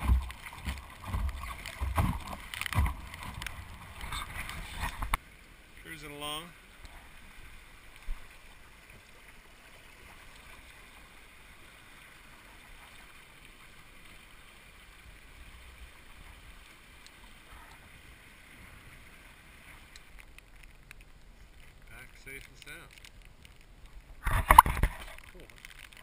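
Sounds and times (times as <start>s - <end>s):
water rushing along boat hull: 0.0s - 26.0s
faint ticks: 16.9s - 17.8s, 19.7s - 26.0s.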